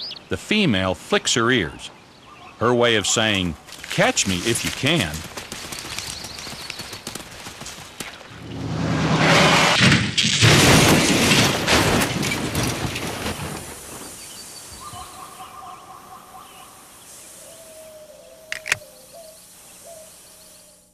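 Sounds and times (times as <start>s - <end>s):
birds chirping: 0.0s - 8.3s, 14.0s - 20.9s
vehicle crash with shattering: 8.4s - 14.1s
sharp click: 18.5s - 18.9s.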